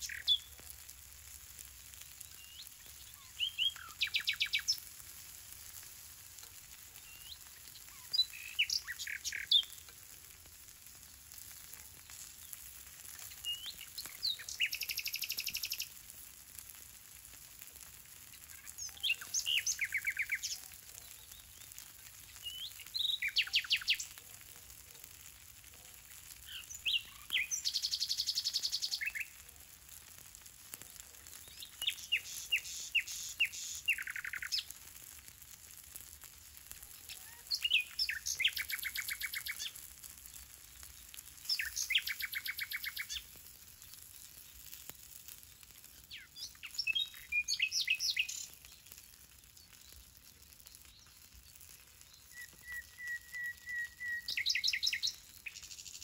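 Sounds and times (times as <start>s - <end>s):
songbird singing with trills: 0.0s - 0.6s, 2.2s - 4.8s, 7.0s - 9.8s, 13.3s - 15.9s, 18.7s - 21.7s, 22.3s - 24.1s, 26.4s - 29.3s, 31.4s - 34.7s, 37.1s - 39.8s, 41.4s - 43.3s, 46.1s - 48.8s, 52.0s - 56.0s.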